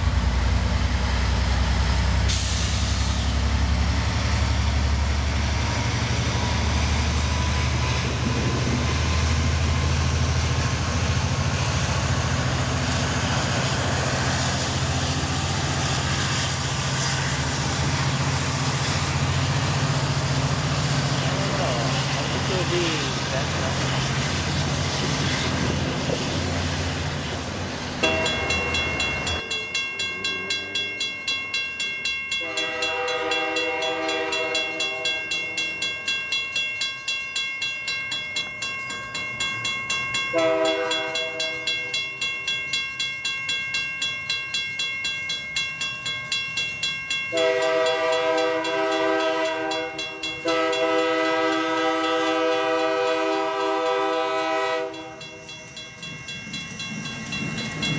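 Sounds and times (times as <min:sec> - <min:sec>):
crossing bell ringing: 0:03.1 - 0:24.3, 0:27.9 - 0:57.9
locomotive air horn blasts: 0:32.4 - 0:35.3, 0:40.3 - 0:41.6, 0:47.3 - 0:55.2.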